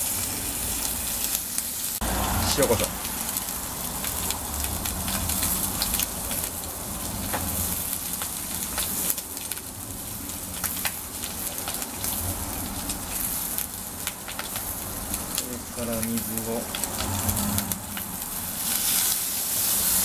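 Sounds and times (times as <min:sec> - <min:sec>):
bacon and egg sizzling: 0:00.0 - 0:20.0
crackling pops: 0:02.6 - 0:18.1.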